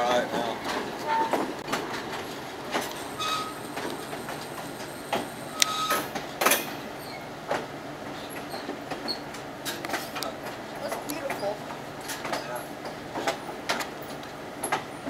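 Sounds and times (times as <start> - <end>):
train car rumbling on track: 0.0 - 15.0
wheels clicking and knocking: 0.0 - 15.0
short high squeaks: 3.0 - 6.1, 6.9 - 7.3.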